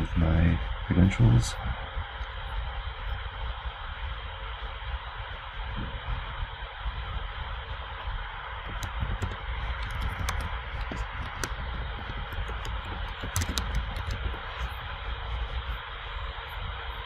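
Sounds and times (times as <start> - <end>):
low rumble: 0.0 - 17.0
keyboard typing: 12.4 - 14.3.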